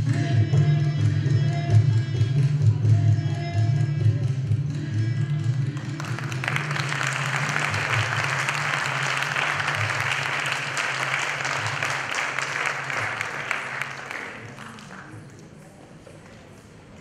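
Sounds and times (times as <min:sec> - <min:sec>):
audience applauding: 0:05.8 - 0:15.6.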